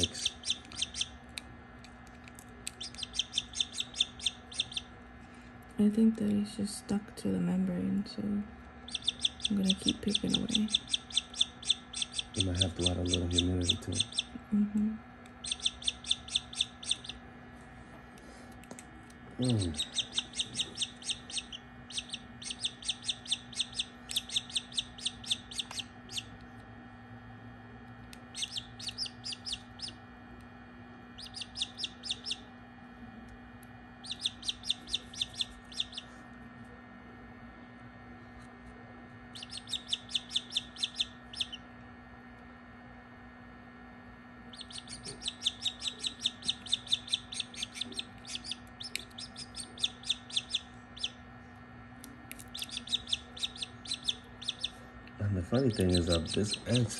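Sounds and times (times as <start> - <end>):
chick peeping: 0.0 - 1.1, 2.6 - 4.9, 8.9 - 14.4, 15.4 - 17.2, 19.4 - 26.3, 28.3 - 30.0, 31.2 - 32.4, 34.0 - 36.1, 39.3 - 41.6, 44.5 - 51.2, 52.5 - 54.8, 55.6 - 56.9
steady low hum: 0.0 - 56.9.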